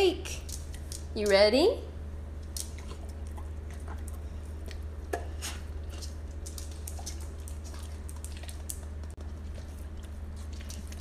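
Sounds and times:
steady low hum: 0.0s - 11.0s
dog chewing and lip smacking: 2.4s - 11.0s.

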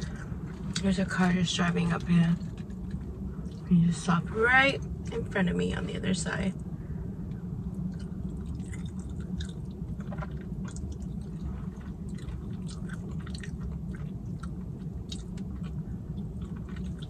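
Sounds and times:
steady low hum: 0.0s - 17.0s
chewing with wet smacks: 1.9s - 3.7s, 7.7s - 17.0s.

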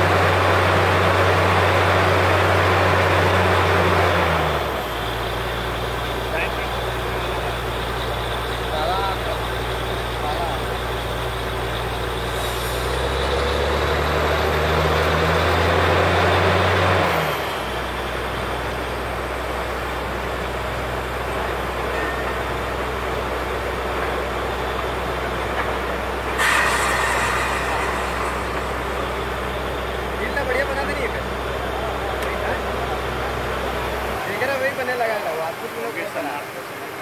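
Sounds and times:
diesel engine droning: 0.0s - 35.8s
air hiss burst: 26.3s - 30.3s.

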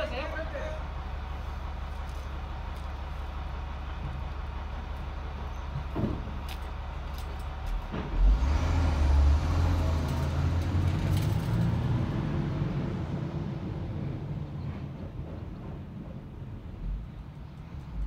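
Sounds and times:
heavy vehicle engine idling and revving: 0.0s - 18.0s.

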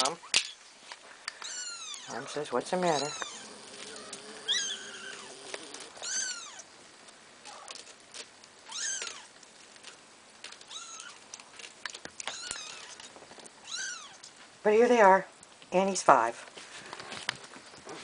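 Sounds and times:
kittens mewing: 1.3s - 6.7s, 8.6s - 9.4s, 10.6s - 11.3s, 12.2s - 14.2s.

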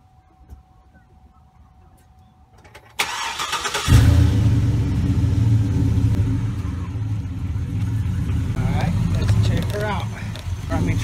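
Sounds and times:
starter cranking engine: 3.0s - 4.1s
car engine idling: 3.0s - 11.0s.

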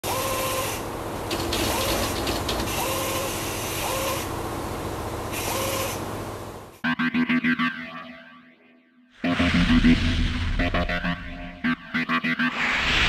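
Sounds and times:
machinery humming: 0.0s - 6.8s.

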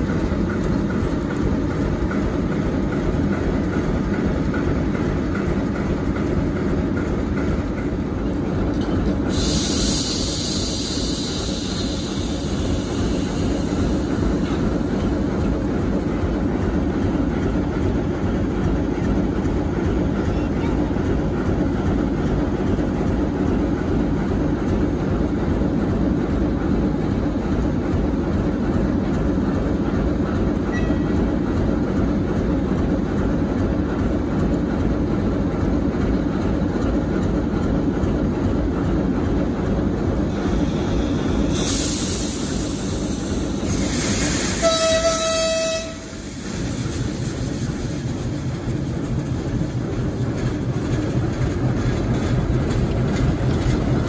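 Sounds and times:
diesel locomotive engine running: 0.0s - 54.0s
hiss: 9.2s - 15.0s, 40.4s - 45.1s, 45.9s - 48.9s
locomotive horn blast: 44.6s - 46.1s.

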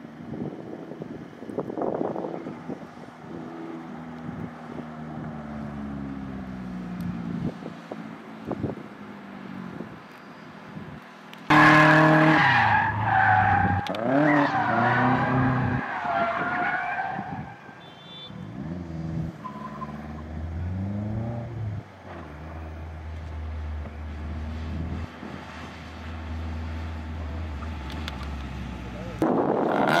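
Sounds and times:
lower steady car engine: 0.0s - 12.0s, 17.8s - 29.6s
tyre squeal: 10.1s - 10.6s, 19.4s - 20.3s
car engine revving hard: 11.5s - 15.8s, 29.5s - 30.0s.

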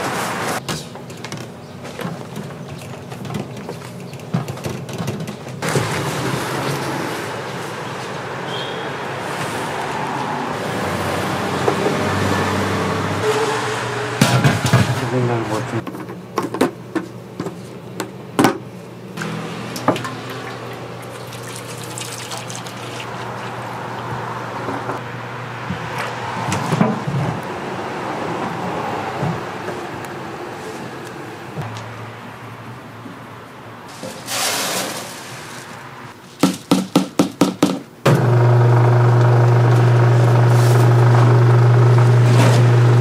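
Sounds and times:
oil pouring into metal pot: 20.0s - 23.6s
electric mill humming: 38.1s - 43.0s.

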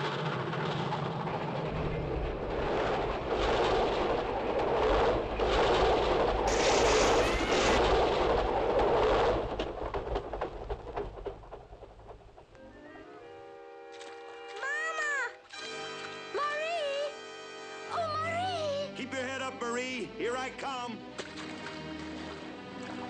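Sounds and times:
train clattering over bridge: 0.0s - 13.9s.

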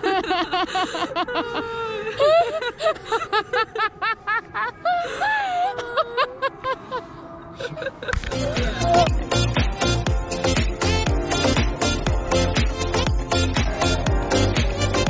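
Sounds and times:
women laughing: 0.0s - 9.1s.

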